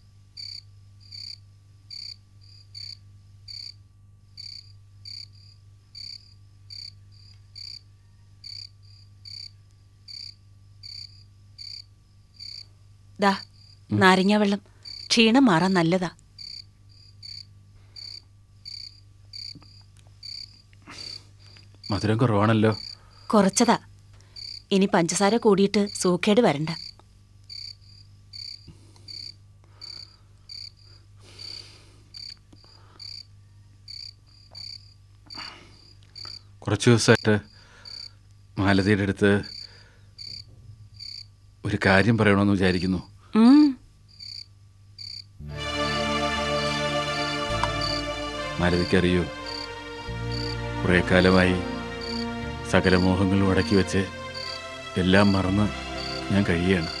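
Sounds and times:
low steady hum: 0.0 - 57.0
frog chirping: 0.4 - 3.8, 4.4 - 13.9, 14.8 - 15.8, 16.4 - 21.2, 22.7 - 23.7, 24.4 - 25.0, 25.8 - 33.3, 33.9 - 36.5, 37.8 - 38.2, 39.4 - 41.3, 44.1 - 45.3, 49.4 - 50.6, 52.0 - 52.2, 53.6 - 54.8, 55.9 - 56.3.

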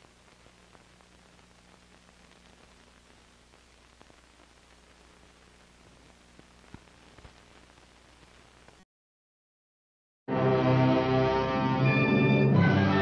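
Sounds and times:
film soundtrack hiss and hum: 0.0 - 8.8
soft crackles and pops: 0.0 - 8.9.

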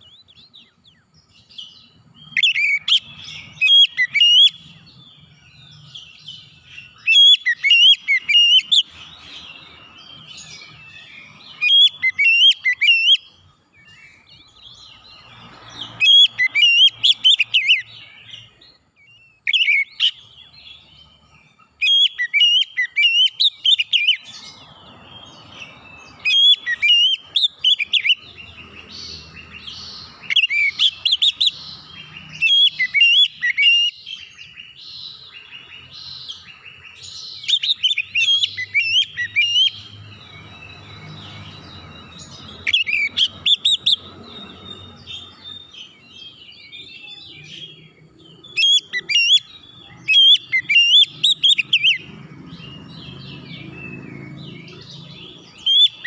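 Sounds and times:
bird singing whistles and chirps: 0.0 - 56.0.

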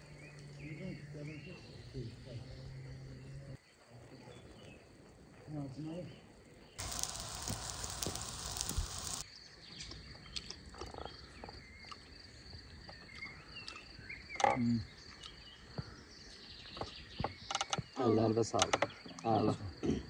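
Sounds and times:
fish sizzling over fire: 6.8 - 9.2
insect buzz: 6.8 - 9.3.

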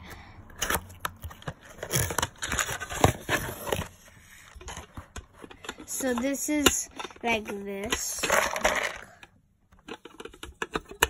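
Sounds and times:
cardboard flaps scraping and rustling: 1.6 - 5.4
sharp clicks and knocks: 9.7 - 11.0.

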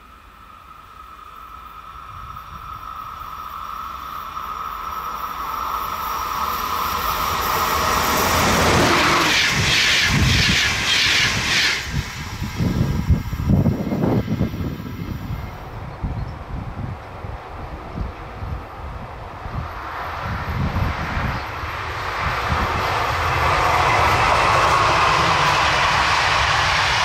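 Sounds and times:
electric locomotive whine: 0.0 - 27.0
wheels rushing on rail: 0.0 - 27.0
low gusty rumbles: 7.4 - 27.0.

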